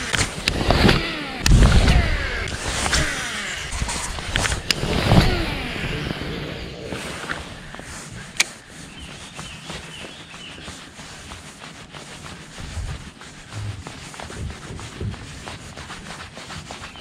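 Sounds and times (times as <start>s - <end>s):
birds chirping: 7.1s - 11.0s, 16.7s - 17.0s
low thumps: 12.6s - 15.7s.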